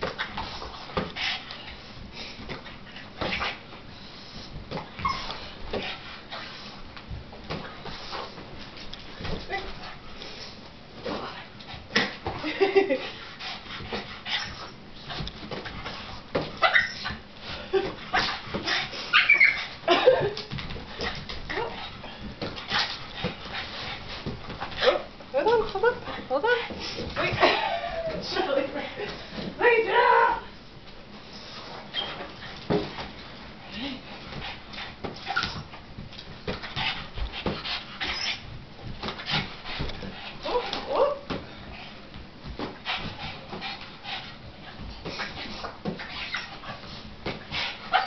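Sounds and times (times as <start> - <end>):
dog whimpering and yipping: 5.0 - 5.4, 16.6 - 17.2, 19.1 - 19.7.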